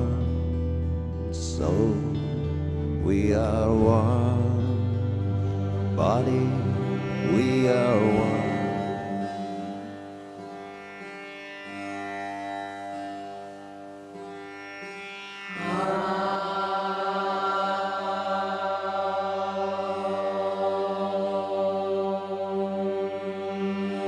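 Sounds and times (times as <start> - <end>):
stringed drone instrument: 0.0 - 24.0
woman singing long notes: 15.5 - 24.0.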